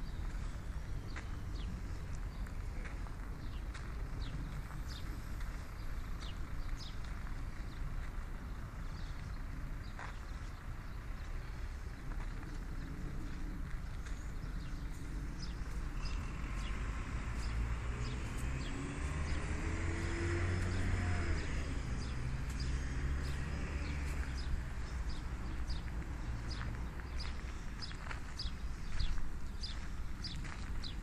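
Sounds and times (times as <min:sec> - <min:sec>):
low traffic rumble: 0:00.0 - 0:31.0
small birds chirping: 0:00.0 - 0:31.0
vehicle passing: 0:13.6 - 0:31.0.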